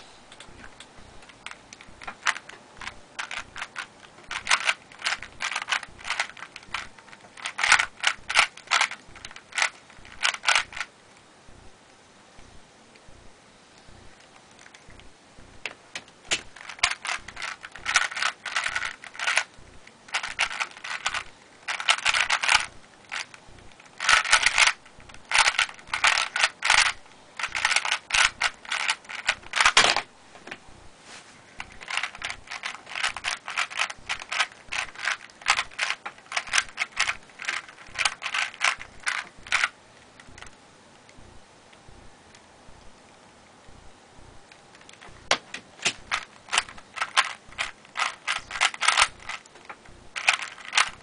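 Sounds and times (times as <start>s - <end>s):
puzzle cube clicking: 0.4s - 10.9s, 15.9s - 30.0s, 31.6s - 40.6s, 44.7s - 51.0s.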